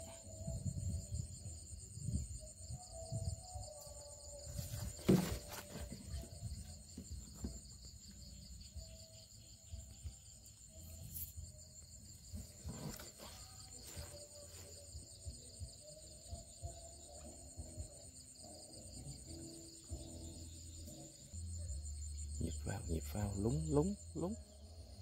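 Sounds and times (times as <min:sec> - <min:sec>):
night insects trilling: 0:00.0 - 0:25.0
soft knocks and rustles: 0:04.6 - 0:07.8.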